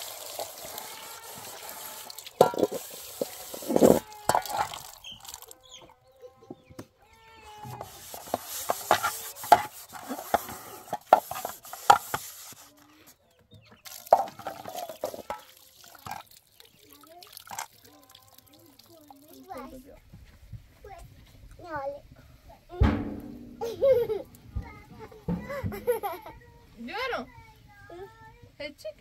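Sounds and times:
tap water running and splashing: 0.0 - 5.6, 7.7 - 12.7, 13.8 - 19.9
bowl and pan clattering: 2.1 - 5.5, 7.7 - 12.6, 13.9 - 16.3, 22.8 - 24.2.

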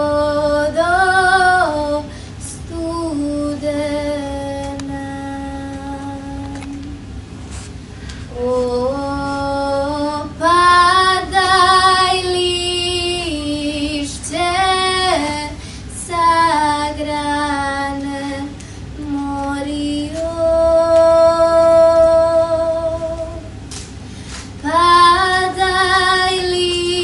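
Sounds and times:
girls singing: 8.4 - 23.5, 24.6 - 27.0.

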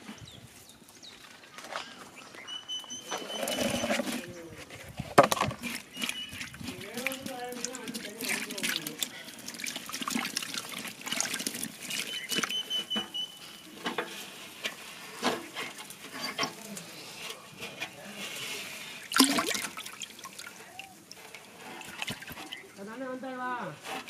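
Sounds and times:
water splashing and sloshing: 3.0 - 22.8
water pouring into tub: 6.3 - 12.6, 19.0 - 22.7.

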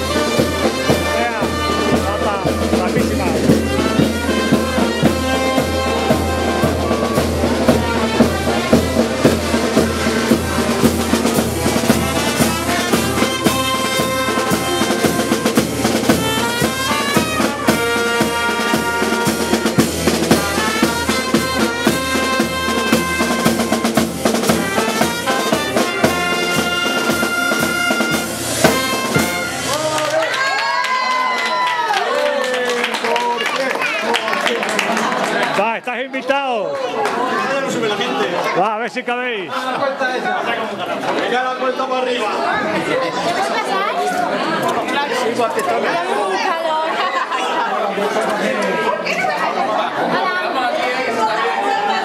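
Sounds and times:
bass drum beat: 0.0 - 30.0
snare drum beat: 0.0 - 30.2
marching band brass: 0.0 - 31.0.

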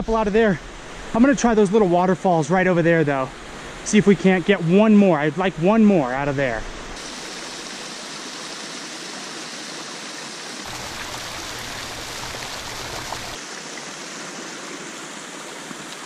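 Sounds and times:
waterfall splashing into pool: 10.5 - 14.6.

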